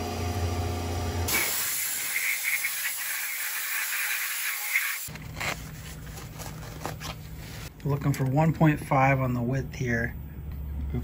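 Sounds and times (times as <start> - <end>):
coolant spraying hiss: 1.3 - 5.1
paper towel rustling: 5.4 - 7.7.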